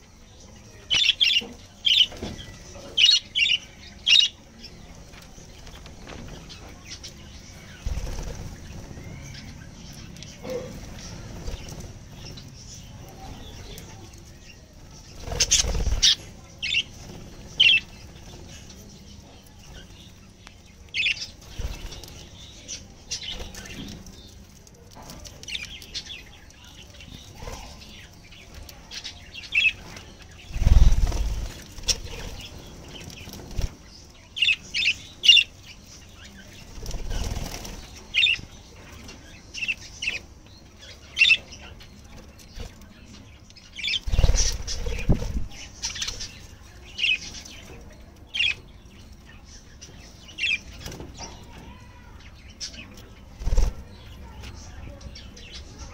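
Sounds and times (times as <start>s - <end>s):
wings flapping: 5.2s - 9.6s, 15.0s - 18.3s, 21.1s - 22.4s, 29.5s - 34.0s, 36.3s - 38.4s, 43.8s - 46.4s, 53.2s - 54.0s.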